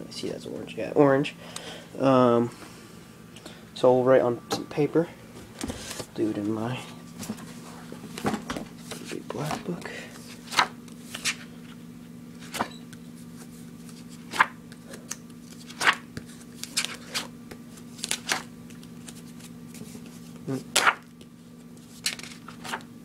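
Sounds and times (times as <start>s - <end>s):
steady low hum: 0.0s - 23.0s
paper pages flipping: 10.2s - 11.5s, 12.4s - 22.9s.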